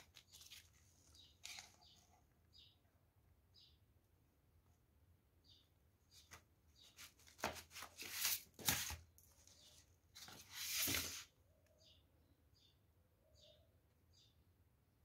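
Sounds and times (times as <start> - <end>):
paper and card rustling: 0.0 - 2.2, 6.2 - 11.3
faint bird chirps: 0.3 - 3.9, 5.4 - 7.0, 11.4 - 14.6.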